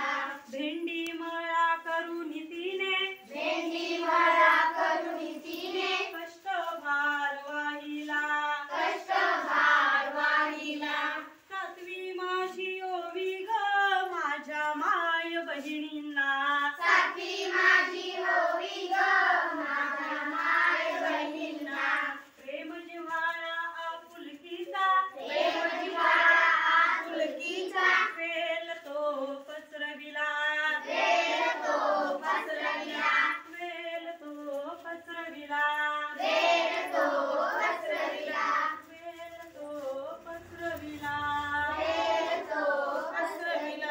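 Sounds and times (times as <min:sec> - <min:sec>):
children singing: 0:03.2 - 0:06.2, 0:08.7 - 0:11.3, 0:16.8 - 0:22.3, 0:25.1 - 0:28.2, 0:30.8 - 0:33.4, 0:36.1 - 0:38.9, 0:41.5 - 0:43.9.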